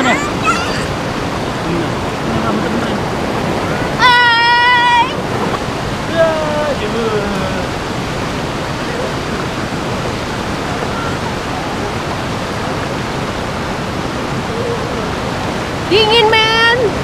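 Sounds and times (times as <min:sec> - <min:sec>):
stream water rushing over rocks: 0:00.0 - 0:17.0.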